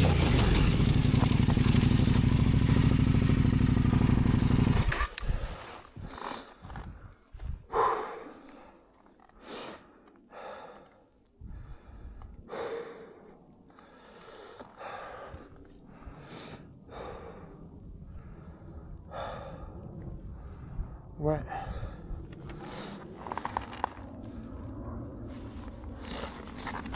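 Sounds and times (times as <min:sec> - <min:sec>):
man breathing hard: 0:05.2 - 0:24.8, 0:25.4 - 0:26.9.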